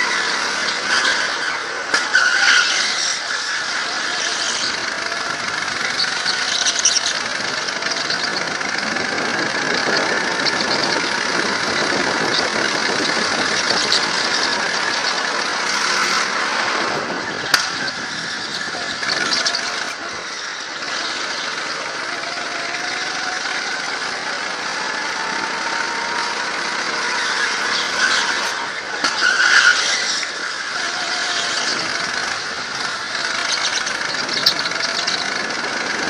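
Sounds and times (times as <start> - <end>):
go-kart engine running: 0.0 - 36.0
tyres squealing: 0.0 - 36.0.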